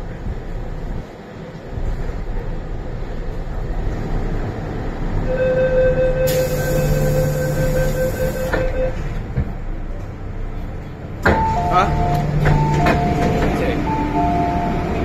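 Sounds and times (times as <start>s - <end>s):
train rumble: 0.0s - 15.0s
hiss: 6.3s - 8.6s.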